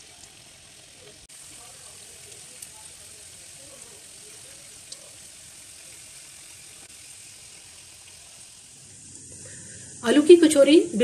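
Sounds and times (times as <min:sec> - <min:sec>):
room noise hiss: 0:00.0 - 0:11.0.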